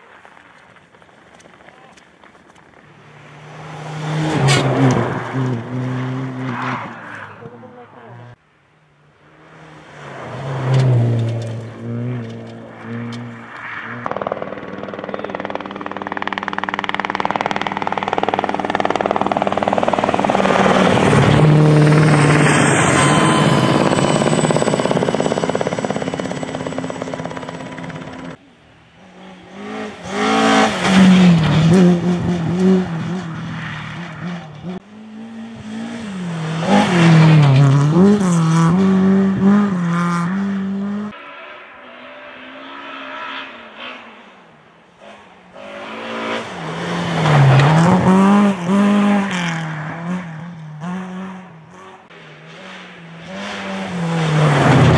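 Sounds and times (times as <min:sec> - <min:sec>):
rally car engine revving: 0:09.5 - 0:28.4, 0:29.1 - 0:44.4, 0:45.0 - 0:54.9
helicopter flying overhead: 0:14.0 - 0:28.4.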